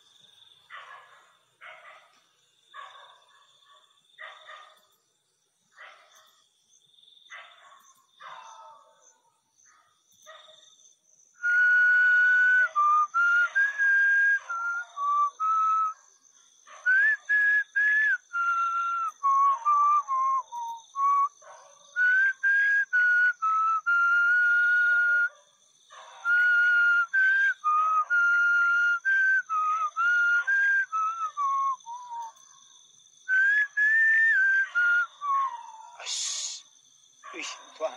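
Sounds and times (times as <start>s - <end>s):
person whistling a slow tune: 11.4s - 16.0s, 16.9s - 21.4s, 22.0s - 25.3s, 26.2s - 32.4s, 33.3s - 36.6s.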